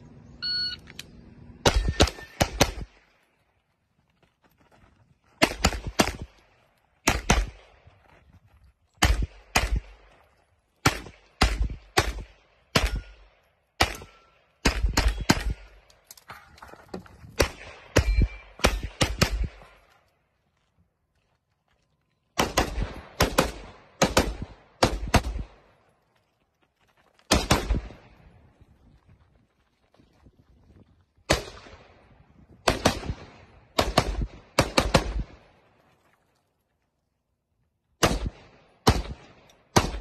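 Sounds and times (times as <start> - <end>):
shot timer beep: 0.4 - 0.9
handgun shots: 17.4 - 19.7.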